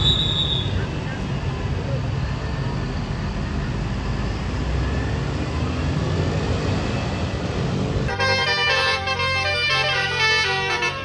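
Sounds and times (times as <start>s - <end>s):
bus engine and road noise: 0.0s - 11.0s
multi-tone air horn: 8.1s - 11.0s.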